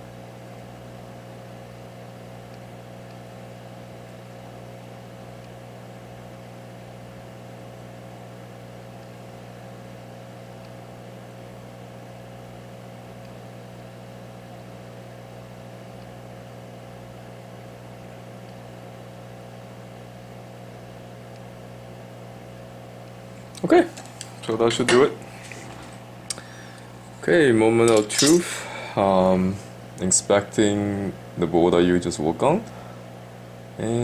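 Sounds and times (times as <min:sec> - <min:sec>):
hot air blower humming: 0:21.6 - 0:34.0.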